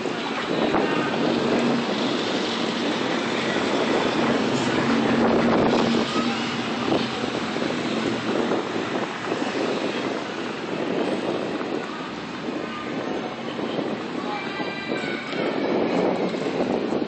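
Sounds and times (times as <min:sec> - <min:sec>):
street traffic: 0:00.0 - 0:17.0
wind on microphone: 0:00.0 - 0:17.0
car passing: 0:00.5 - 0:14.2.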